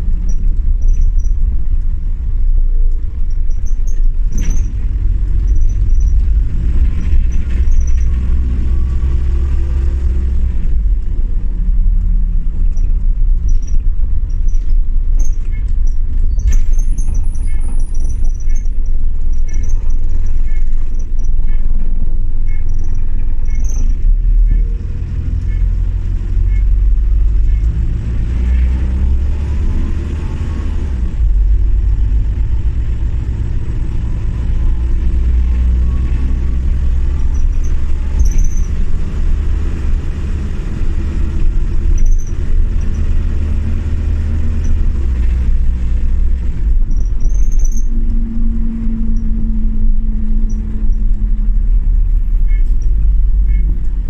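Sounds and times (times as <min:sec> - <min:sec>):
bus engine and road rumble: 0:00.0 - 0:54.0.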